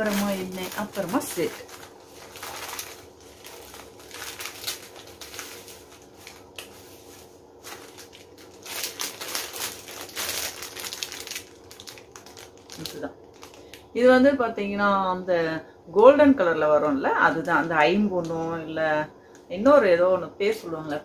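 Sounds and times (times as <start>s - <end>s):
packaging crinkling: 0.0s - 13.9s.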